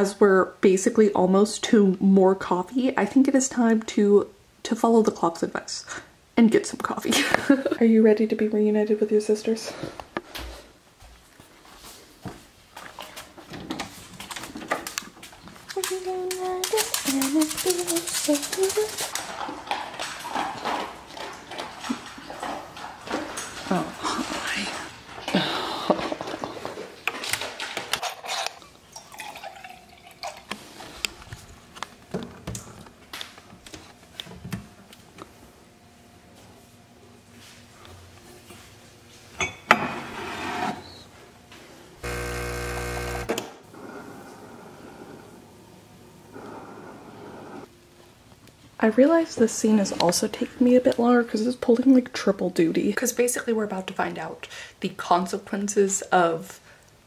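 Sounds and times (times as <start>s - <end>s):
espresso machine pump humming: 42.0s - 43.4s.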